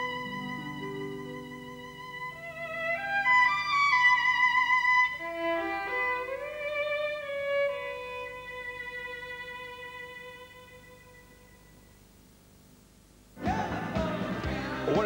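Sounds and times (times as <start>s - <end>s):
violin melody with vibrato: 0.0s - 11.7s.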